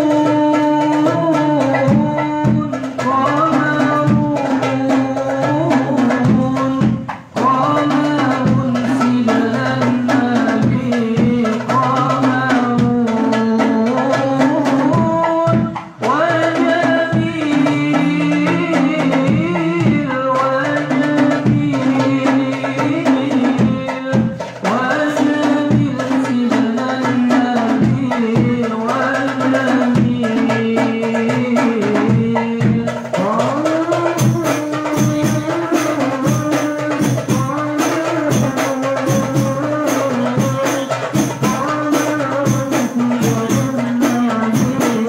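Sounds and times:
frame drums beating: 0.0s - 45.0s
group of voices singing: 0.0s - 45.0s.

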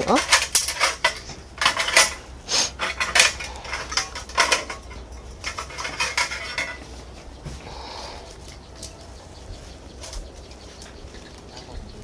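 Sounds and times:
small metal parts clinking: 0.0s - 7.0s.

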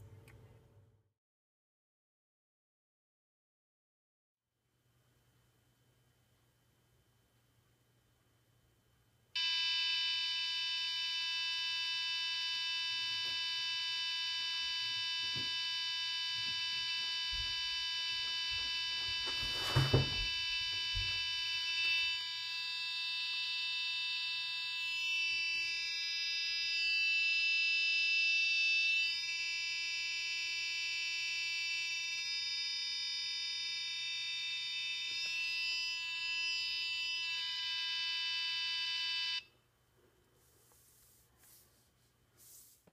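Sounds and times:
electronic buzzer tone: 9.4s - 39.5s.

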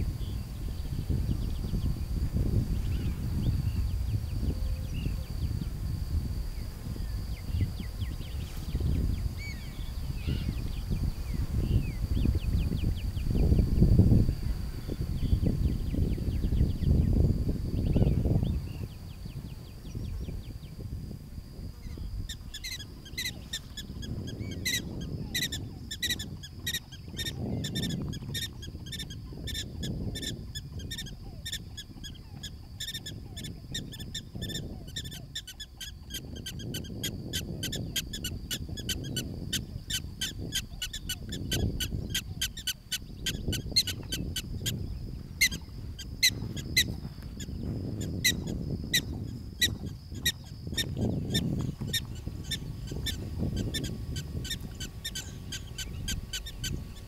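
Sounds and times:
low gusting rumble: 0.0s - 35.4s, 36.2s - 57.0s
prairie dogs barking: 22.3s - 44.8s, 48.2s - 57.0s.

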